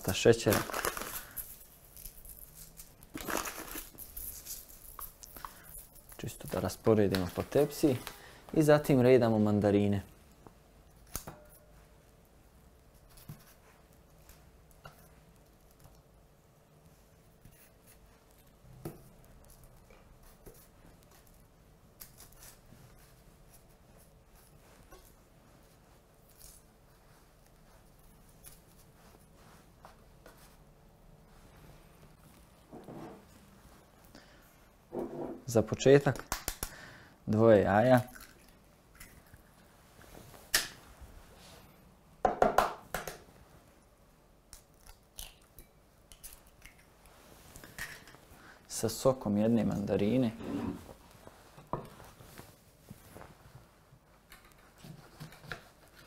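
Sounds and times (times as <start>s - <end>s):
eggshells cracking: 2.5s - 6.2s.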